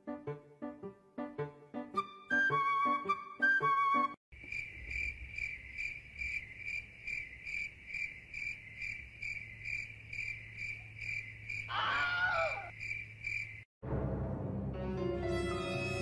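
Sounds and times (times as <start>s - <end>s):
cricket chirping: 4.3s - 13.7s
cry falling in pitch: 11.7s - 12.7s.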